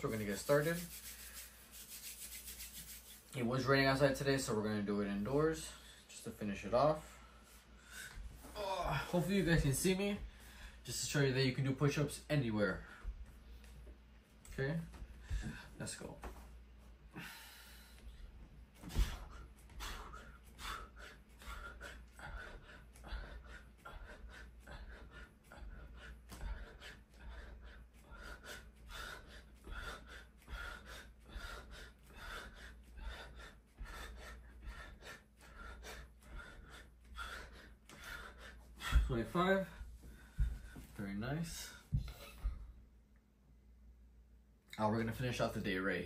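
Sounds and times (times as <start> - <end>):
man breathing hard: 10.2 - 10.8, 17.1 - 39.1.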